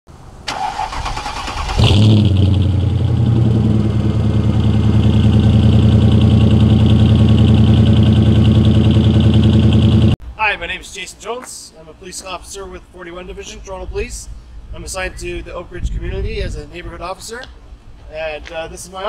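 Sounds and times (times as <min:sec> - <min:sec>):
car engine starter cranking: 0:00.5 - 0:02.5
car engine idling: 0:00.5 - 0:10.2.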